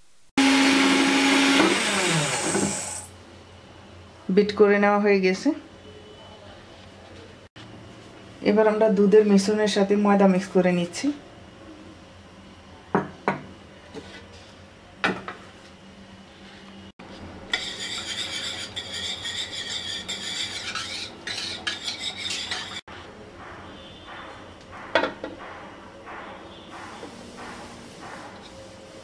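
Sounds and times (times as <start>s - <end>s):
spoon scraping batter in bowl: 17.5s - 22.8s.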